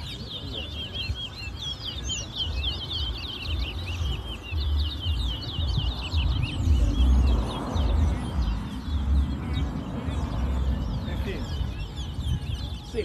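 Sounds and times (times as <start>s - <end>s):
finches singing chirps and trills: 0.0s - 13.0s
low gusty rumble: 3.5s - 13.0s.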